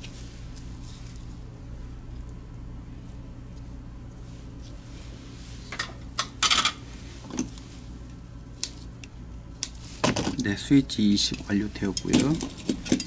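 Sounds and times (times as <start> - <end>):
steady low hum: 0.0 - 13.0
small tools clicking and clinking: 11.2 - 13.0.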